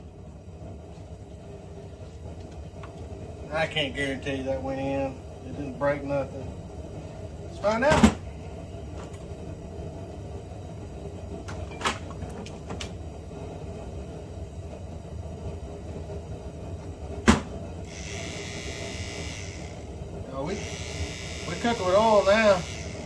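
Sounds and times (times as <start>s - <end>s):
steady low hum: 0.0s - 23.0s
small electric motor whirring: 17.9s - 23.0s.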